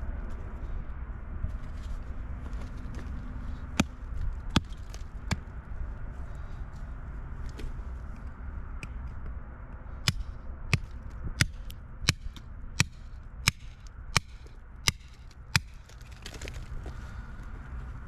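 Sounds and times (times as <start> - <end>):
hammer striking rock: 10.0 - 15.8.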